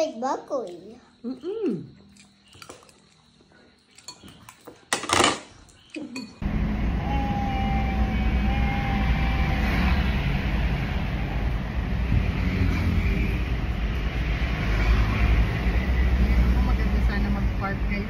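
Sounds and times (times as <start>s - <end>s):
metal spoon clinking on bowl: 3.9s - 6.4s.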